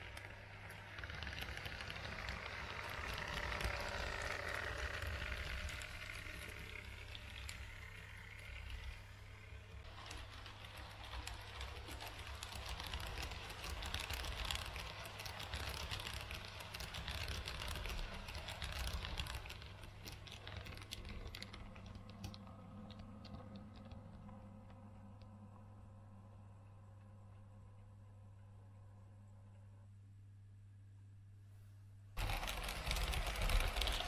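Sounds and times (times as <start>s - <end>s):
model train wheels clattering: 0.0s - 24.9s, 32.2s - 34.0s
steady low hum: 0.0s - 34.0s.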